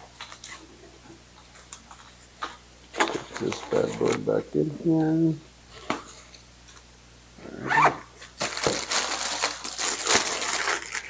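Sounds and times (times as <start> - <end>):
plastic bag crinkling: 8.2 - 11.0.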